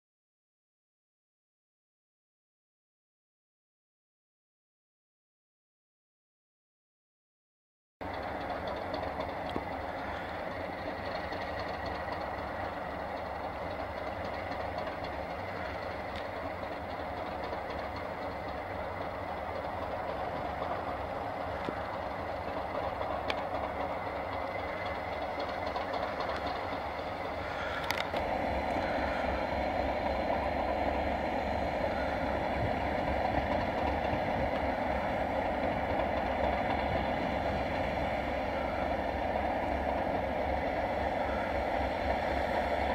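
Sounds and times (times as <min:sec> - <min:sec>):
diesel locomotives idling: 0:08.0 - 0:42.9
click: 0:09.4 - 0:09.7.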